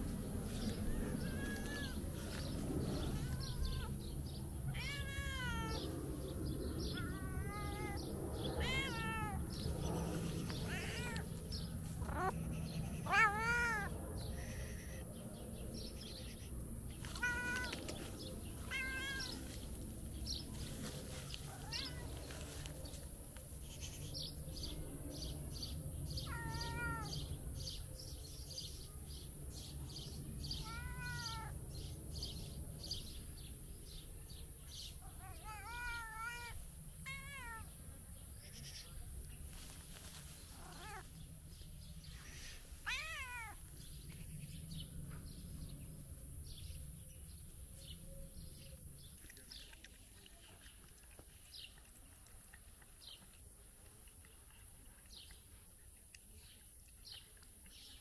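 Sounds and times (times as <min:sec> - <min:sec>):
cat meowing: 0:00.8 - 0:02.0, 0:03.0 - 0:04.0, 0:04.7 - 0:05.9, 0:06.9 - 0:09.5, 0:10.5 - 0:11.4, 0:12.0 - 0:15.0, 0:17.0 - 0:17.8, 0:18.7 - 0:19.4, 0:21.6 - 0:22.2, 0:26.2 - 0:27.2, 0:30.6 - 0:31.6, 0:35.2 - 0:37.7, 0:40.6 - 0:41.0, 0:42.2 - 0:43.6.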